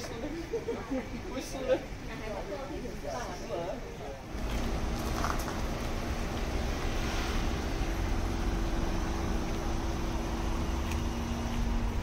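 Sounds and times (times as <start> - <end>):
engine running steadily: 4.3 - 12.0.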